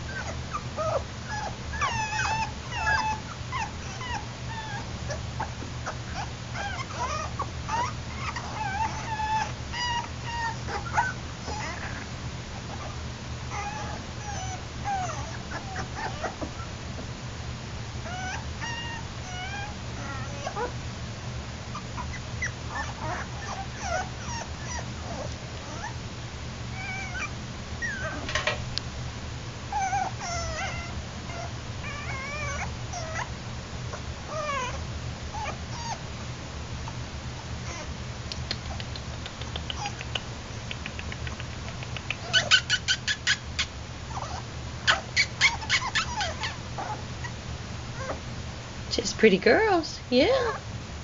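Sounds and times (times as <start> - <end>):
puppies crying: 0.0 - 12.1, 12.7 - 16.8, 18.0 - 20.8, 21.7 - 26.0, 26.7 - 28.4, 29.7 - 33.3, 33.9 - 36.0, 37.6 - 38.0, 39.6 - 40.2, 42.2 - 47.4, 48.0 - 48.3
steady low hum: 0.0 - 51.0.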